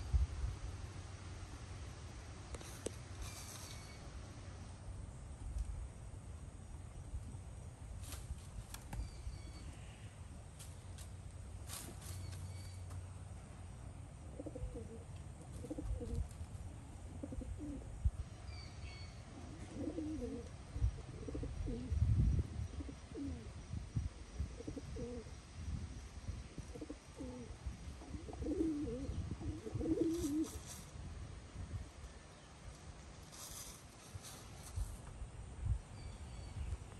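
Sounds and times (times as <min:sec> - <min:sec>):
small bird chirping faintly: 0:08.8 - 0:11.0, 0:11.7 - 0:13.0.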